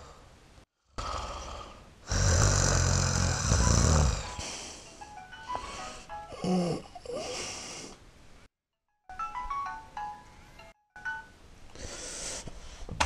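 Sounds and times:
person snoring: 0.9 - 8.0
electronic ringtone melody: 4.9 - 6.3, 9.0 - 11.4.

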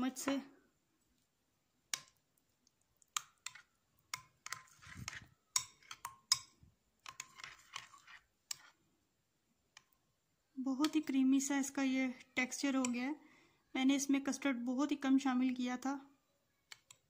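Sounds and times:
wet stirring: 0.0 - 10.1, 10.7 - 13.1.

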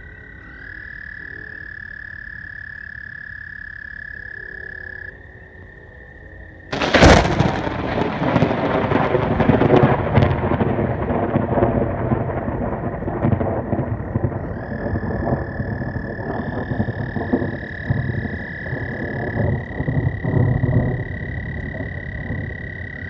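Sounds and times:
frogs trilling: 0.0 - 7.3, 13.3 - 23.0
rumbling thunder: 6.7 - 23.0.

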